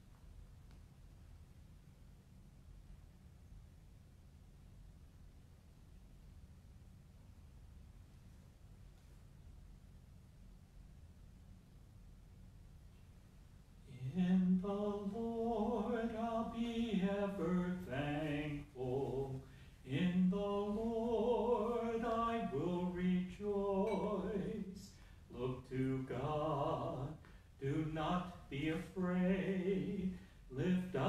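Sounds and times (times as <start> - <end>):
man singing unaccompanied: 13.9 - 31.0.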